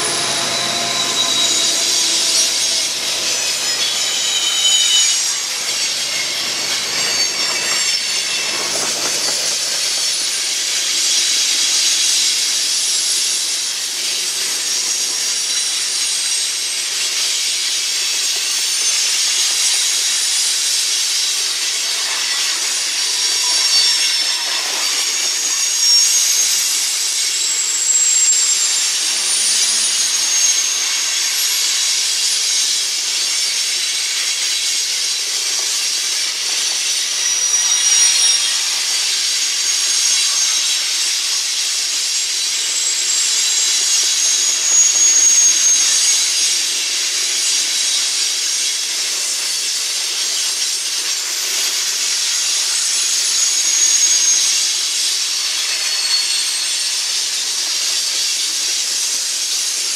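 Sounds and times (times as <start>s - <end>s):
high-pitched wheel squeals: 0.0s - 12.3s, 17.7s - 48.6s, 51.3s - 57.6s
steel wheels hissing on rails: 0.0s - 59.9s.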